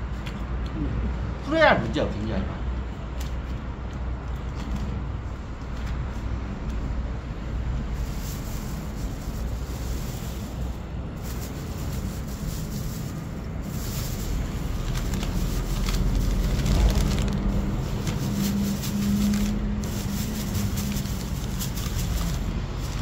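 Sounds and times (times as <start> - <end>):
low outdoor rumble: 0.0 - 23.0
plastic packaging crinkling: 8.0 - 23.0.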